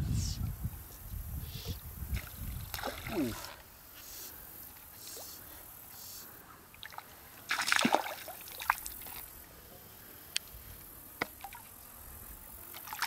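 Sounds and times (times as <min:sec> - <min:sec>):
water splashing and sloshing: 0:02.1 - 0:03.7, 0:06.7 - 0:09.3, 0:12.7 - 0:13.0
stream flowing: 0:06.7 - 0:09.5, 0:11.1 - 0:13.0.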